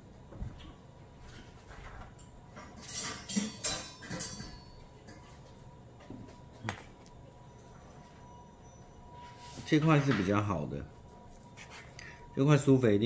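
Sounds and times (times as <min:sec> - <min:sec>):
metal cutlery clinking: 0:02.7 - 0:05.3.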